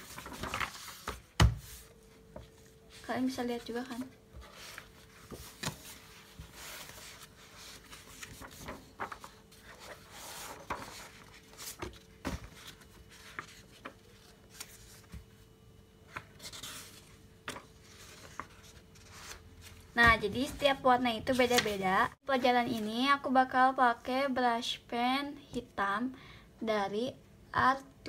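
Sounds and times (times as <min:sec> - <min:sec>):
paper pages turning: 0:00.0 - 0:02.7, 0:03.9 - 0:15.4, 0:16.1 - 0:19.9, 0:21.4 - 0:21.8
faint steady hum: 0:00.0 - 0:28.0.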